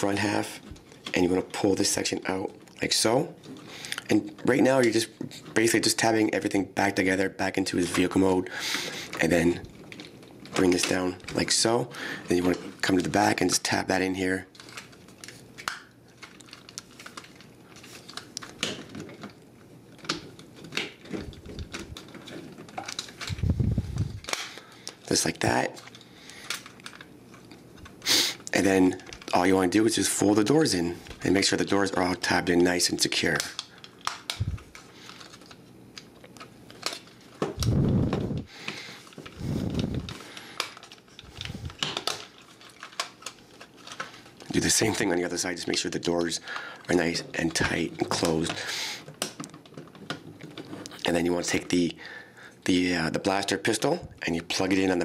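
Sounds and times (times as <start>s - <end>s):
plastic parts clicking and snapping: 14.4s - 29.6s, 32.3s - 51.7s
plastic toy parts clicking: 40.6s - 45.0s.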